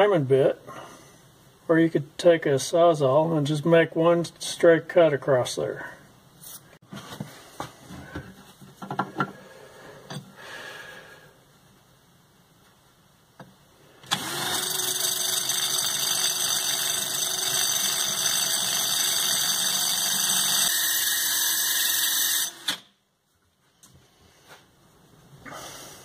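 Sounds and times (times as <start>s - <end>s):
cutoff wheel grinding steel: 14.0s - 22.9s
drill motor whine: 14.1s - 22.8s.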